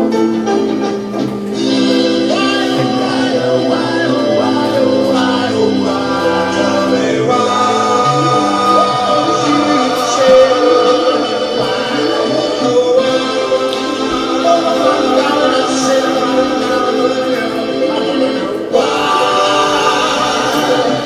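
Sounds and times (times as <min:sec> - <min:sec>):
choir-like backing voices: 0:00.0 - 0:21.0
held instrumental chords: 0:00.0 - 0:21.0
person singing a melody: 0:01.6 - 0:21.0.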